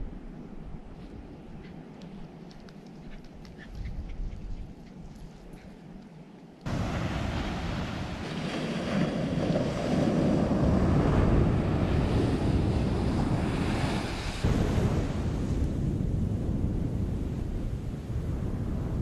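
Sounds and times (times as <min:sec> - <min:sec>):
wind buffeting microphone: 0:00.0 - 0:19.0
waves breaking on beach: 0:06.7 - 0:19.0.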